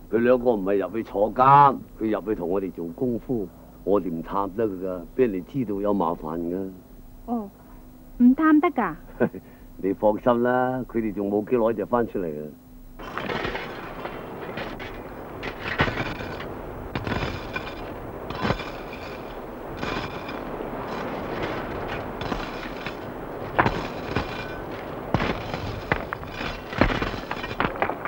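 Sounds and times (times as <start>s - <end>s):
steady noisy background: 0.0s - 28.0s
sharp bangs and cracks: 13.0s - 28.0s.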